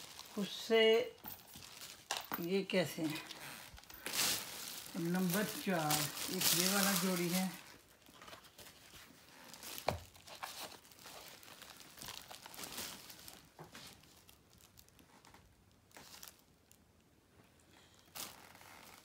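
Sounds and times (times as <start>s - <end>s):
faint crinkling and rustling: 0.0s - 19.0s.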